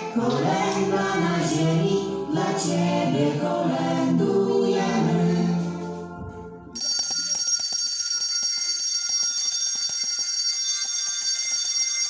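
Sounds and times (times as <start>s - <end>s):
handbells ringing: 6.8s - 12.0s.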